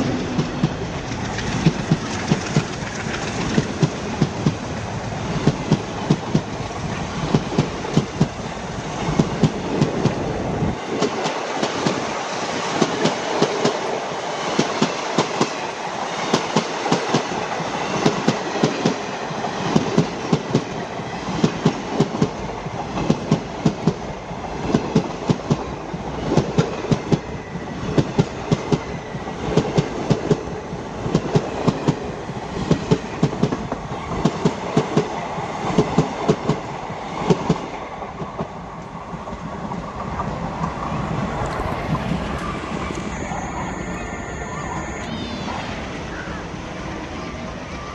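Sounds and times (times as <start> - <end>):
train wheels clacking over rail joints: 0.0 - 10.2, 10.8 - 24.0
train rumble: 0.0 - 47.9.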